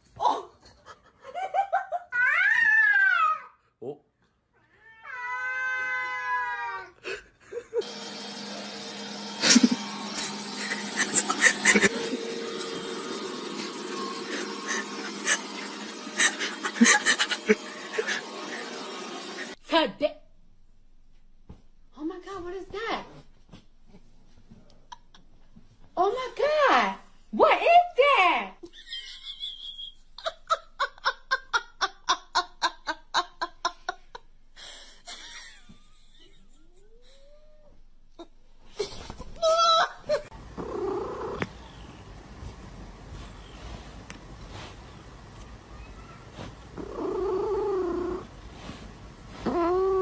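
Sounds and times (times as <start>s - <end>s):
robot vacuum cleaner humming: 7.8s - 19.6s, 40.3s - 50.0s
person laughing: 9.4s - 12.4s, 14.0s - 18.8s, 28.6s - 34.2s.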